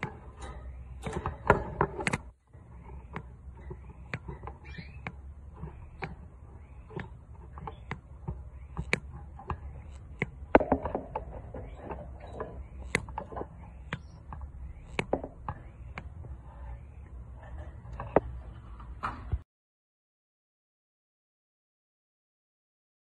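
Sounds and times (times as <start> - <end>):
clicks and taps on wire cage: 0.0 - 2.3
canary chirping: 2.8 - 17.0.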